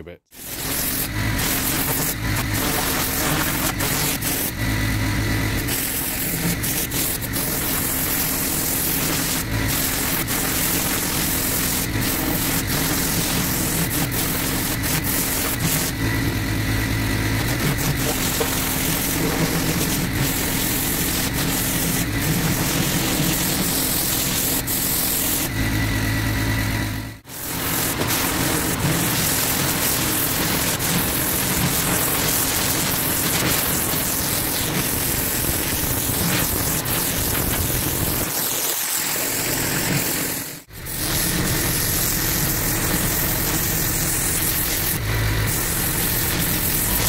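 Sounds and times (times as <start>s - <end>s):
water jet hissing: 0.3s - 25.5s, 27.2s - 47.0s
pressure washer engine drone: 0.3s - 47.0s.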